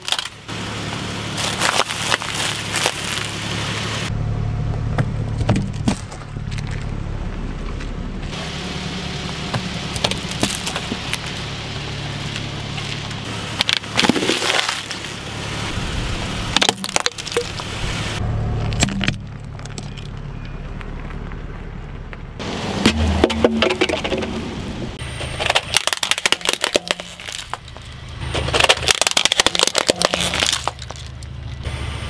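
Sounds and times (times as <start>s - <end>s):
brittle breaking: 0.0s - 0.4s, 1.4s - 3.4s, 9.9s - 11.3s, 12.3s - 15.2s, 16.6s - 17.7s, 25.3s - 31.6s
car engine running: 0.0s - 32.0s
tyres crushing objects: 1.3s - 3.6s, 9.5s - 11.4s, 12.3s - 15.2s, 16.5s - 17.7s, 18.7s - 20.2s, 22.8s - 24.5s, 25.2s - 31.6s.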